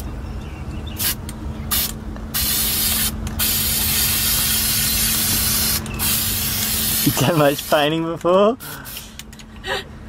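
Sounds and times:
spray paint can hissing: 1.0s - 7.9s.

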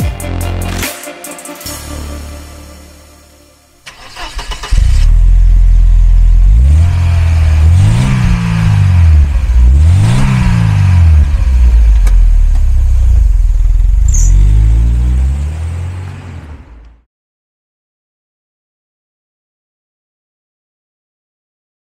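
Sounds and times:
car engine idling and revving: 3.8s - 17.1s
car pulling away: 3.8s - 17.1s.

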